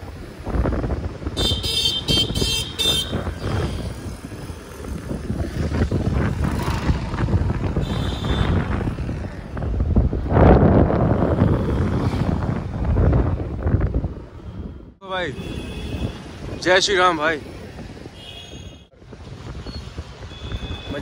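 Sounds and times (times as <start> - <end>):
wind buffeting microphone: 0.0 - 21.0
motorcycle engine: 1.4 - 14.5.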